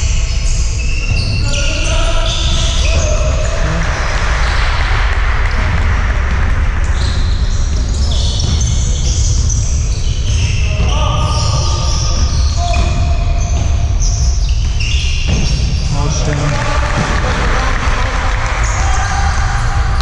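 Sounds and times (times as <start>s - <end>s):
sneaker squeaks on court floor: 0.0s - 4.6s, 6.9s - 16.4s
players' voices: 0.8s - 7.1s, 7.7s - 20.0s.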